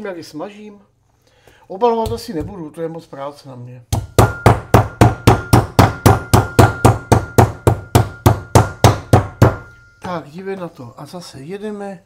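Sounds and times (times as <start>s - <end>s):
meat mallet pounding meat: 3.9s - 9.7s.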